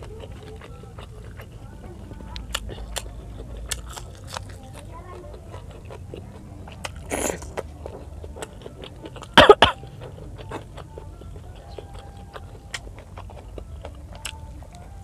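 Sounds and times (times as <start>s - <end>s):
chewing and eating: 0.0s - 15.0s
woman coughing: 9.4s - 9.8s.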